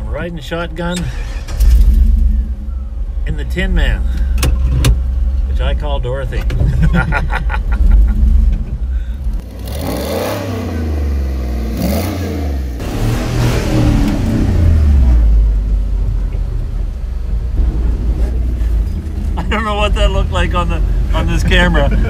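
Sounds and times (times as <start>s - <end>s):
engine revving: 9.4s - 15.8s
rushing noise: 16.8s - 21.5s.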